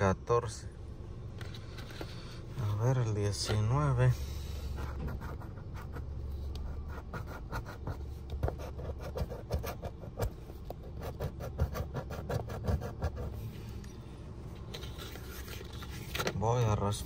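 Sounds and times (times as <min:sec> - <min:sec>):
coin scratching ticket: 0:10.9 - 0:13.3.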